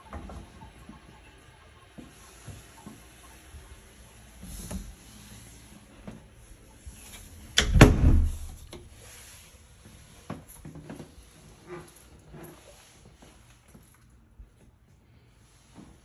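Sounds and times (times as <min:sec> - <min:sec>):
heavy low thud: 0:07.6 - 0:08.6.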